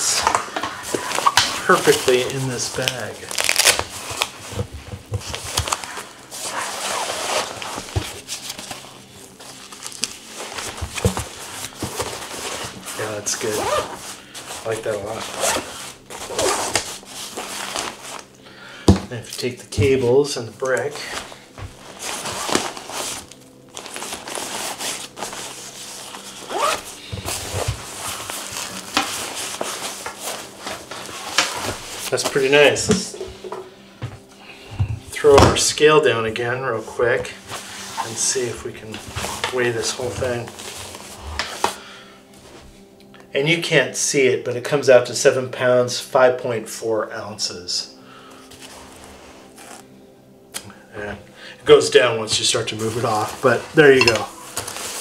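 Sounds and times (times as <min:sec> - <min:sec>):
fabric backpack rustling: 0:00.0 - 0:18.4, 0:20.8 - 0:35.3, 0:36.8 - 0:43.0, 0:48.4 - 0:50.0, 0:51.7 - 0:55.0
zipper closing: 0:05.5 - 0:07.9, 0:13.4 - 0:14.1, 0:15.2 - 0:18.0, 0:26.4 - 0:31.6.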